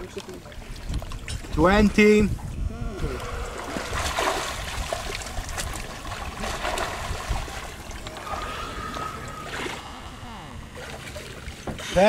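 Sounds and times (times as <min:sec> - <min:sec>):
water lapping and splashing: 0:00.0 - 0:12.0
low uneven rumble: 0:02.4 - 0:11.9.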